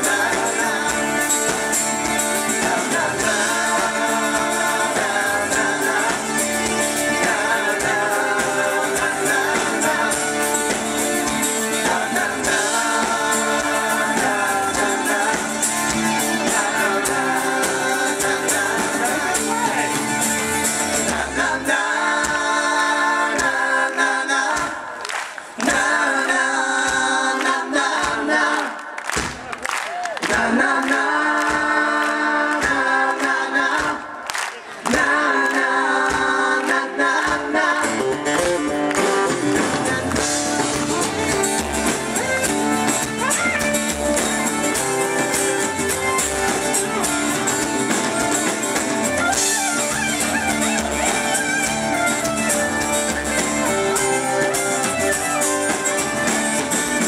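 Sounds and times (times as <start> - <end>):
live band playing: 0.0 - 26.0, 36.0 - 57.0
man singing lead vocals: 0.0 - 28.9, 30.2 - 51.8
voices singing: 0.0 - 29.0, 30.2 - 57.0
hand-clapping: 23.3 - 25.9, 26.8 - 37.6, 38.3 - 44.3.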